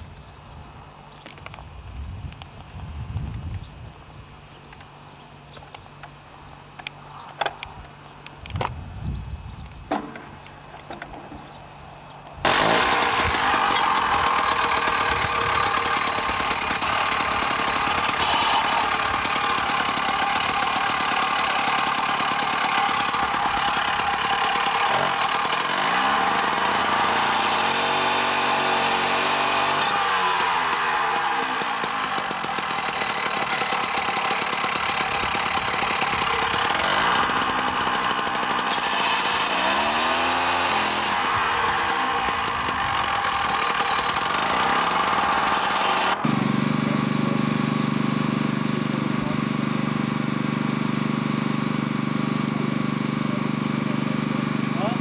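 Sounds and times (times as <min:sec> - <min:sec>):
disc cutter cutting steel: 0:12.5 - 0:50.1.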